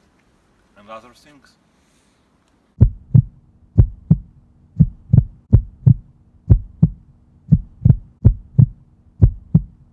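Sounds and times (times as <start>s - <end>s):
faint steady hum: 0.0s - 9.9s
heartbeat thumps: 2.8s - 9.9s.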